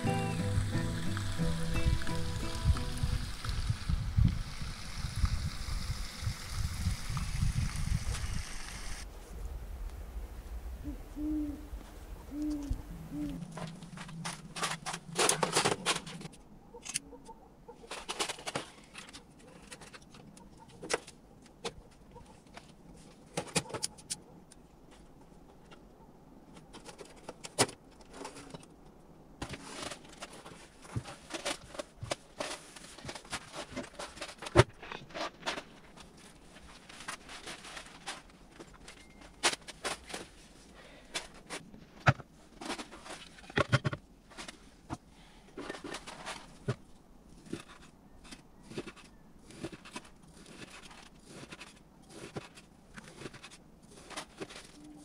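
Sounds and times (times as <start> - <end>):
objects handled clicking and knocking: 13.5 - 17.0, 17.8 - 55.0.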